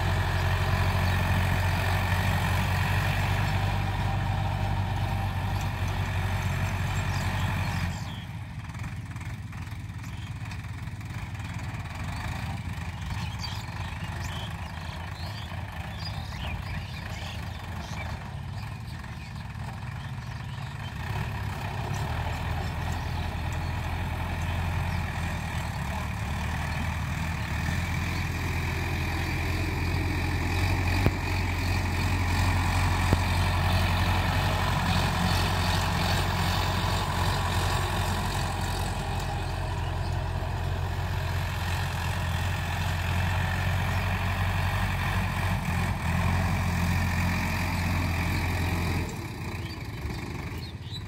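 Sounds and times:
tractor diesel engine running: 0.0 - 51.0.

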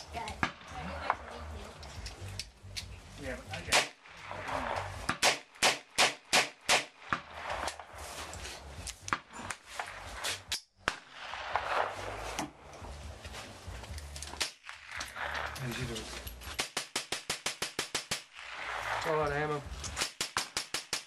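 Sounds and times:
gun handling clicks: 1.8 - 3.0, 13.8 - 18.2, 19.8 - 21.0
revolver gunshots: 3.6 - 7.9, 10.8 - 12.3, 14.4 - 15.9, 16.5 - 21.0.

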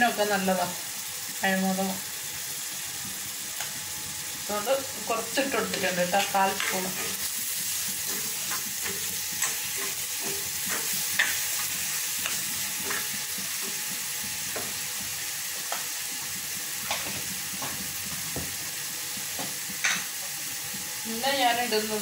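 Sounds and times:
masala sizzling in an iron pan: 0.0 - 22.0
steel spoon scraping a pan: 5.5 - 13.8.

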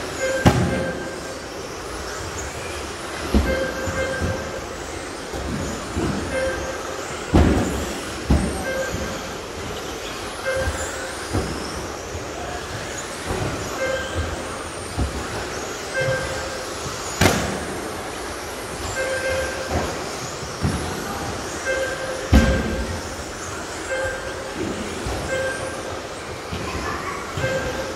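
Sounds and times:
trucks thumping and knocking: 0.0 - 27.9
short beeps: 13.8 - 14.2, 23.8 - 24.4, 25.2 - 25.8.

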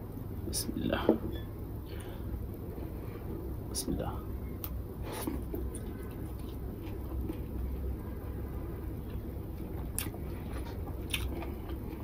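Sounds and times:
steady low hum: 0.0 - 12.0
soft chewing: 4.6 - 12.0.

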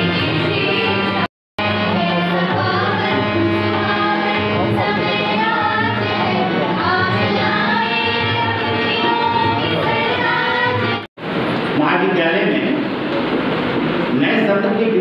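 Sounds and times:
low musical accompaniment: 0.0 - 11.0
group of voices singing: 0.0 - 11.1.

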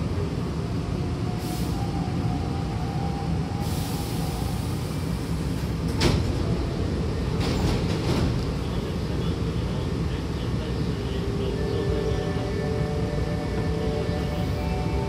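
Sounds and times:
train low rumble: 0.0 - 15.0
air hiss: 3.6 - 5.7.

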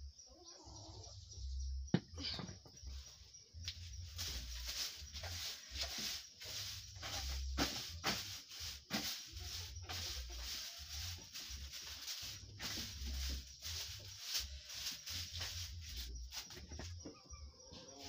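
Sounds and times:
broom sweeping dirt floor: 2.6 - 18.0.

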